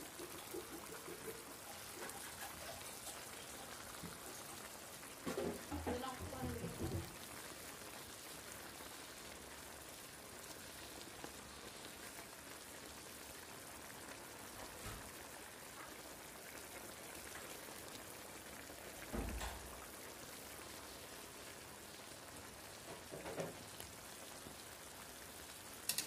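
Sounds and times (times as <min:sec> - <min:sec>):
food simmering in a pan: 0:00.0 - 0:26.0.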